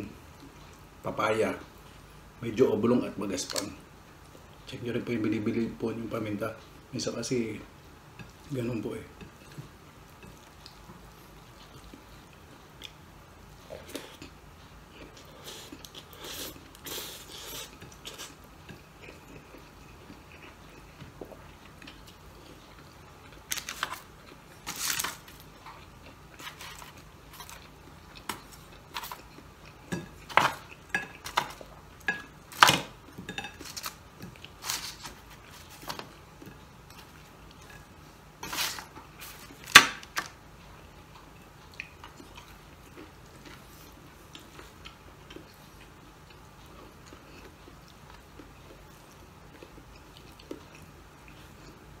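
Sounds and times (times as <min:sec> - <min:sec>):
person chewing: 0:13.6 - 0:52.0.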